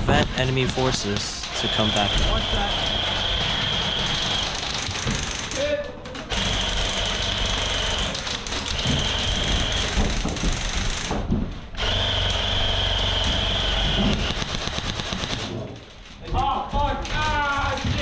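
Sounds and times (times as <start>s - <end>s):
airsoft gun firing full-auto: 11.8s - 15.6s.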